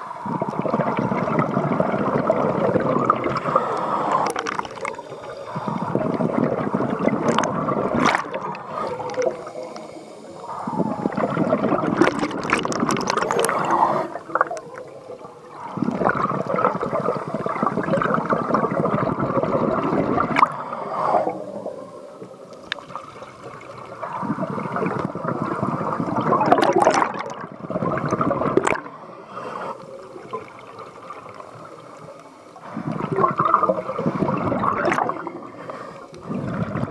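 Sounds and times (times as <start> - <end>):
underwater bubbles gurgling: 0.0 - 36.9.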